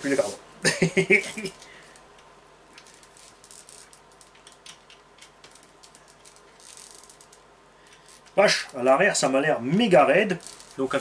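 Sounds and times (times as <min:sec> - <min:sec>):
toy car parts clicking: 0:02.8 - 0:08.4, 0:10.3 - 0:10.8.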